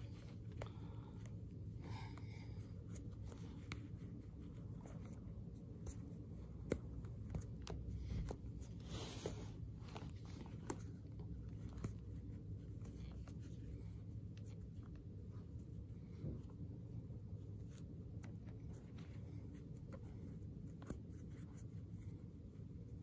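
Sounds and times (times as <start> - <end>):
fingers picking at shoelace knot: 0.0 - 15.2
low steady hum: 0.0 - 23.0
lace rubbing on lace: 2.4 - 23.0.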